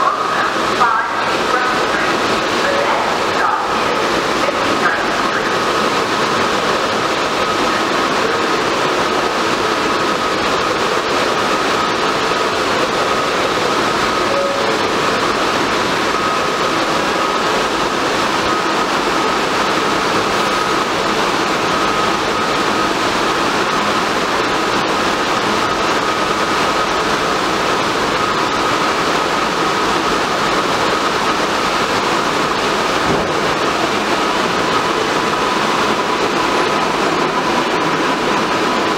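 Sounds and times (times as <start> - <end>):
train equipment hum and whine: 0.0 - 38.9
high steady tone: 11.8 - 16.5.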